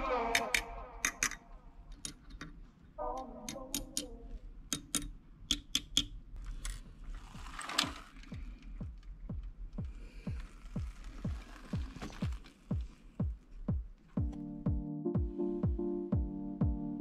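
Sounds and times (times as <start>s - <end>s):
screwdriver clicking on plastic: 0.3s - 2.6s, 4.7s - 6.8s.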